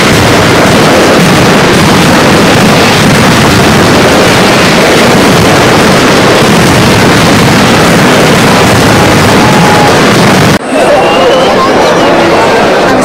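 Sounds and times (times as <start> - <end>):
firecrackers exploding in a barrage: 0.0 - 10.6.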